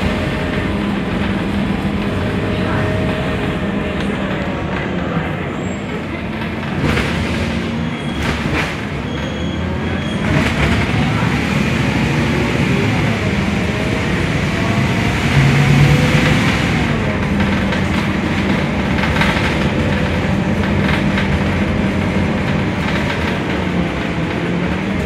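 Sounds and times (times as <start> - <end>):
bus engine drone: 0.0 - 25.0
road rumble: 0.0 - 25.0
knocks and rattles: 16.0 - 25.0.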